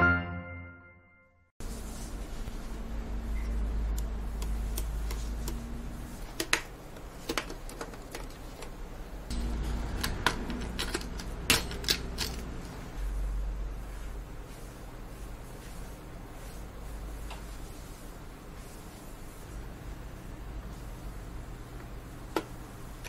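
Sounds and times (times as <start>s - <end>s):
low steady hum: 8.6s - 23.0s.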